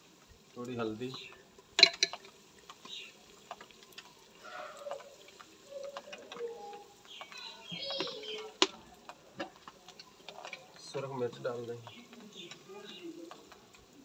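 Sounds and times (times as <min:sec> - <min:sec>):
onions sizzling in a pot: 0:00.0 - 0:14.0.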